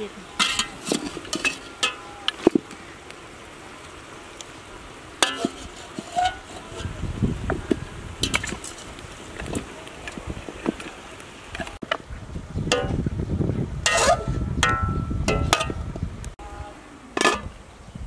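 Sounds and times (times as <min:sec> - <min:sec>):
ladle stirring in metal stockpot: 0:00.3 - 0:02.7, 0:05.2 - 0:11.0, 0:13.8 - 0:15.8.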